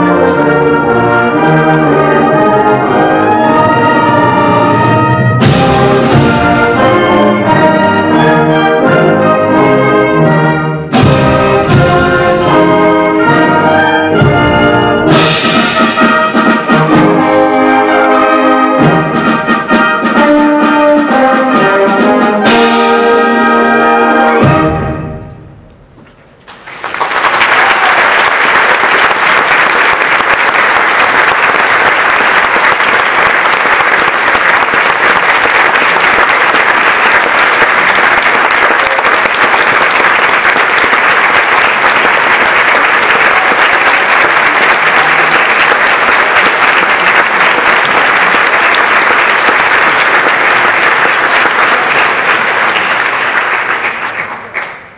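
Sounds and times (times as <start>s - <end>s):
brass chord echo: 0.0s - 25.6s
audience applauding: 26.4s - 54.9s.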